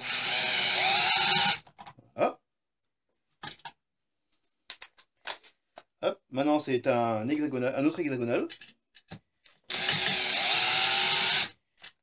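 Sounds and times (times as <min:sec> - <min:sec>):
cordless drill driving screw: 0:00.0 - 0:01.6, 0:09.7 - 0:11.6.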